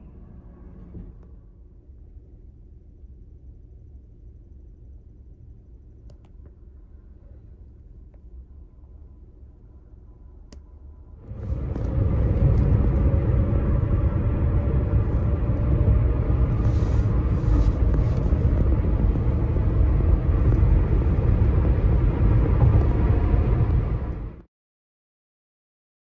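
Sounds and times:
road and tyre noise: 7.0s - 24.5s.

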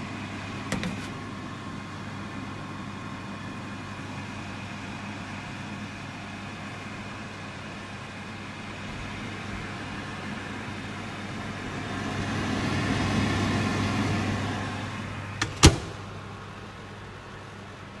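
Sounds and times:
microwave humming: 0.0s - 18.0s
door latch clicks: 15.4s - 16.0s.

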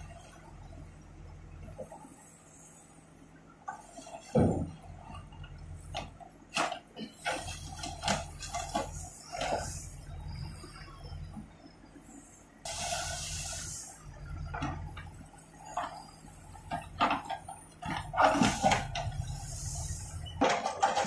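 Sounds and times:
diesel engine humming: 0.0s - 21.0s
rubble knocking and clattering: 20.3s - 21.0s.

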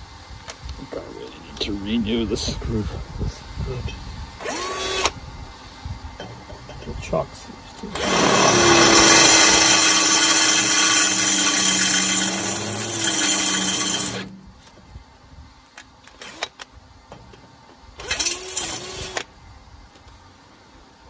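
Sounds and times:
cordless drill boring into steel: 4.4s - 5.1s, 8.0s - 14.3s, 18.0s - 19.3s.

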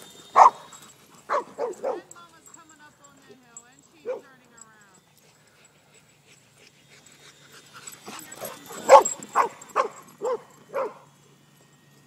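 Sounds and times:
dog barking: 0.4s - 0.7s, 1.3s - 2.2s, 4.0s - 4.4s, 8.3s - 11.0s.

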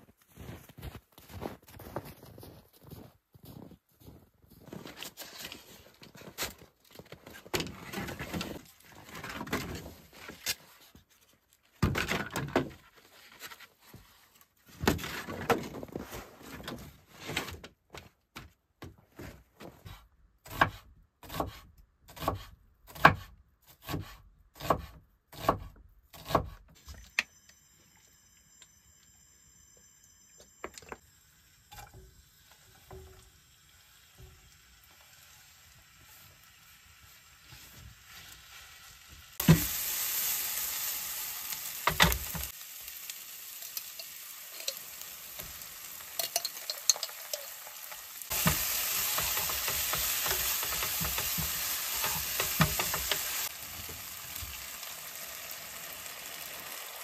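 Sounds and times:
wood scraping and shuffling: 4.6s - 20.0s.

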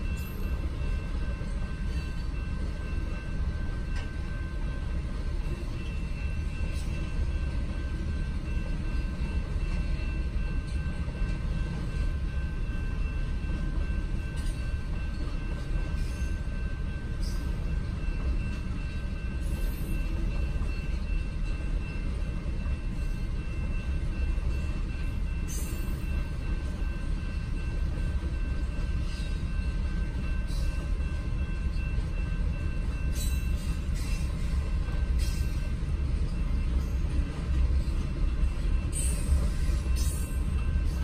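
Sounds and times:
train wheels rumbling on rails: 0.0s - 41.0s.

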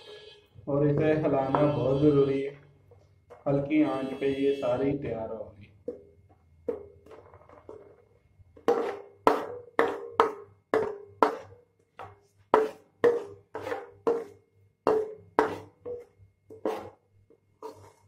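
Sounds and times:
ladle scraping and knocking pan: 8.6s - 17.0s, 17.6s - 18.0s.

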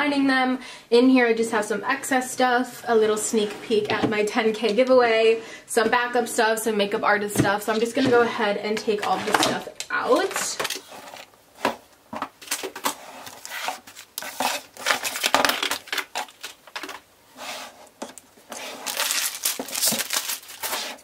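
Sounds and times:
items knocking and clattering: 7.4s - 17.1s, 18.0s - 21.0s
cardboard and plastic rustling: 8.9s - 21.0s.

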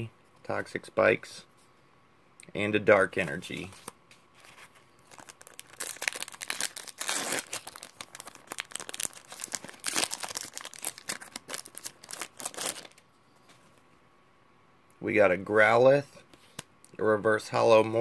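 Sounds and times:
foil wrapper crinkling and tearing: 4.4s - 13.0s.

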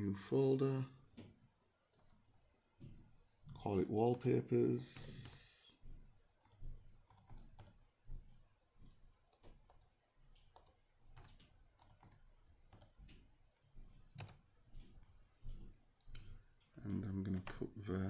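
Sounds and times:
keyboard typing: 1.9s - 2.3s, 4.8s - 5.6s, 6.4s - 7.9s, 8.9s - 18.0s.

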